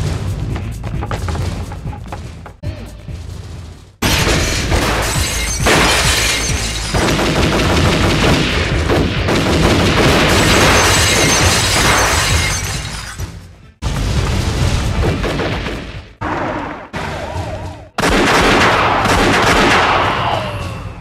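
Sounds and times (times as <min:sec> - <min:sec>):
glass and bottles shattering: 0:04.0 - 0:07.3, 0:10.2 - 0:13.4
gunfire barrage: 0:04.0 - 0:12.3, 0:14.3 - 0:20.8.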